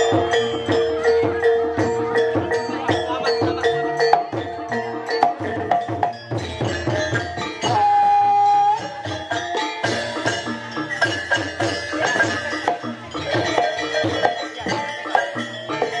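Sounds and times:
tuned metallophones melody: 0:00.0 - 0:16.0.

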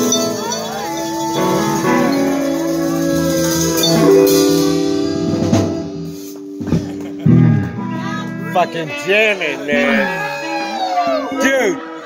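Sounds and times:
drums: 0:00.0 - 0:08.0
guitar chords: 0:00.0 - 0:10.1.

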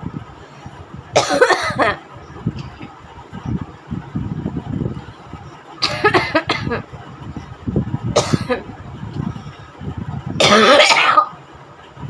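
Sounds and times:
woman coughing: 0:01.2 - 0:02.0, 0:05.8 - 0:06.8, 0:08.2 - 0:08.6, 0:10.4 - 0:11.3
woman clearing throat: 0:10.4 - 0:11.3.

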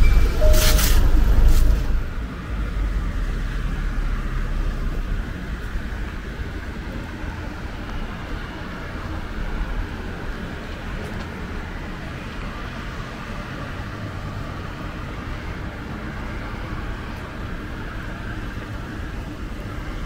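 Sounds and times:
low outdoor rumble: 0:00.0 - 0:11.4.

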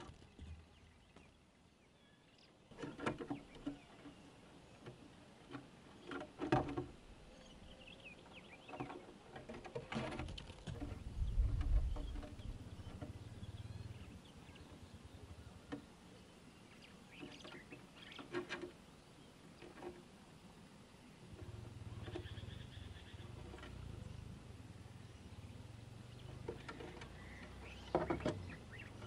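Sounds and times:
faint bird chirps: 0:10.8 - 0:19.8, 0:21.0 - 0:29.0.

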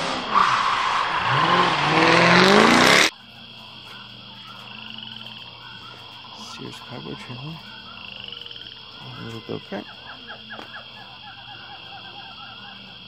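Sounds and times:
vehicle engine accelerating: 0:00.0 - 0:03.1.

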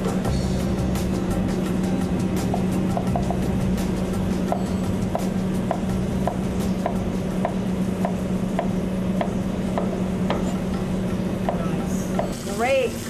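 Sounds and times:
knife chopping on plastic board: 0:04.5 - 0:10.6.

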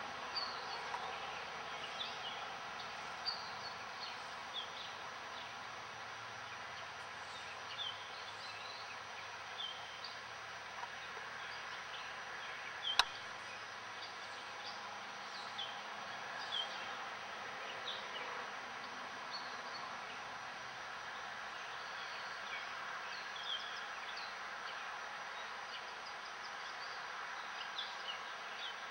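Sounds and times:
steady hiss: 0:00.0 - 0:28.9
sharp click: 0:12.9 - 0:13.2.

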